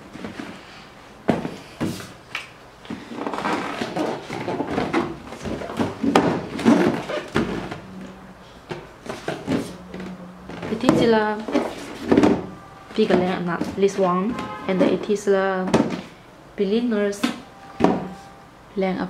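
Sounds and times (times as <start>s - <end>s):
cardboard boxes knocking: 1.3s - 2.1s, 3.0s - 8.0s, 8.7s - 15.0s, 15.6s - 16.1s, 17.8s - 18.2s
cardboard scraping and rubbing: 3.1s - 7.9s, 9.0s - 14.6s.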